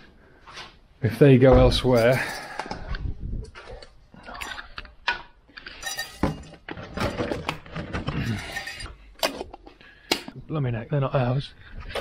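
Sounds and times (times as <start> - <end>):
hard objects clinking and rattling: 5.6 - 9.7.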